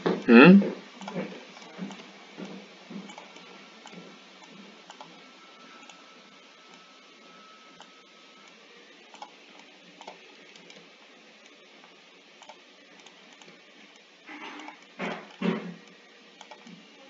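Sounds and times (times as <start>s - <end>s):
steady background hiss: 0.0s - 17.0s
computer mouse clicks: 9.1s - 10.8s, 12.4s - 13.6s, 16.4s - 16.8s.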